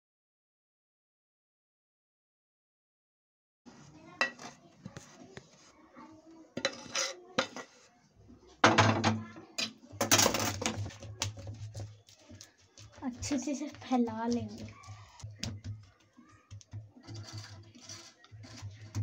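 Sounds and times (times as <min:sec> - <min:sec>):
metal spatula scraping a pan: 0:03.7 - 0:05.7, 0:06.6 - 0:07.9, 0:17.0 - 0:19.0.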